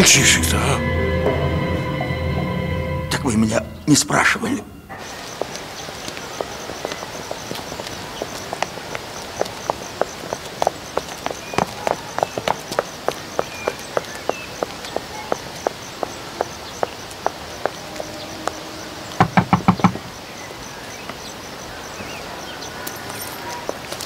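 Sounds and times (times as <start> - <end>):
high heels walking on hard ground: 4.9 - 20.1
knocking on a door: 19.2 - 20.1.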